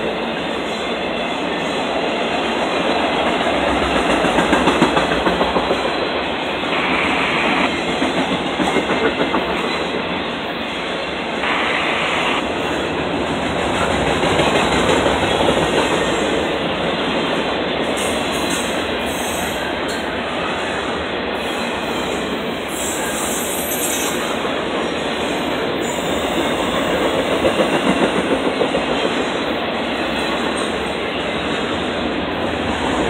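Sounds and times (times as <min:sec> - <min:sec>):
train wheels clattering over rail joints: 0:02.8 - 0:06.0, 0:06.9 - 0:10.1, 0:13.3 - 0:17.3, 0:25.8 - 0:30.9.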